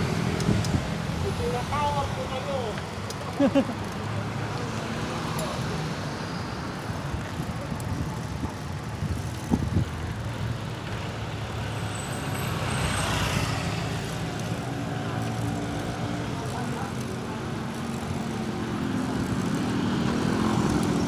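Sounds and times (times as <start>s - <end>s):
vehicle passing: 11.6s - 21.0s.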